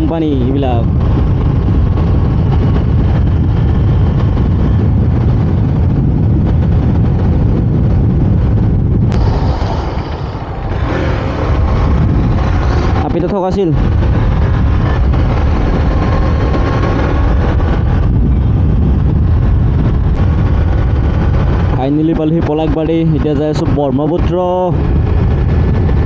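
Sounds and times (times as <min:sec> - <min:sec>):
motorcycle engine running: 0:00.0 - 0:26.0
wind and road noise: 0:00.0 - 0:26.0.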